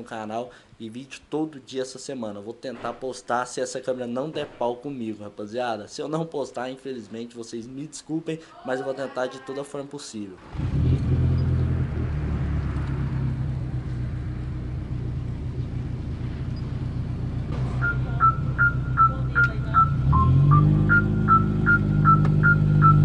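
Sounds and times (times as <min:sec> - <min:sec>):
high repeating beeping figure: 0:17.8 - 0:23.0.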